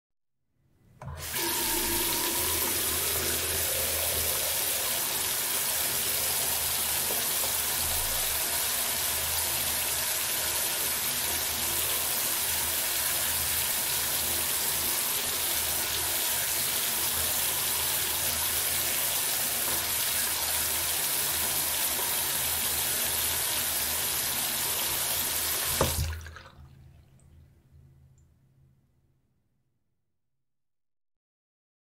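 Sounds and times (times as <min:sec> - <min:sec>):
tap water splashing into sink: 0:01.0 - 0:09.6, 0:16.1 - 0:26.9
sharp knock of tap: 0:25.8 - 0:26.0
water trickling: 0:25.8 - 0:27.5.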